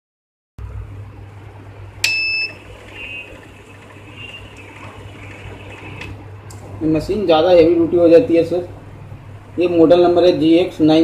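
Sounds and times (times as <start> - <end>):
low steady hum: 0.6 - 11.0
short high beep: 2.0 - 3.3.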